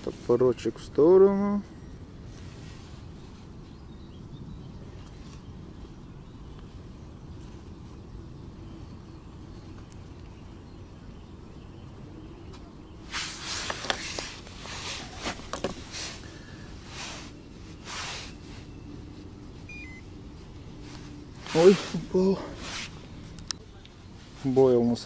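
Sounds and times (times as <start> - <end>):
low background rumble: 0.0 - 25.0
fishing tackle rustling: 13.1 - 19.4.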